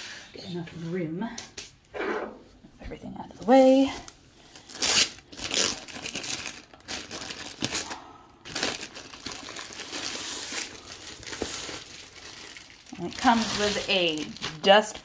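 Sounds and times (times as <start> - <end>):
plastic packaging crinkling: 4.0 - 15.0.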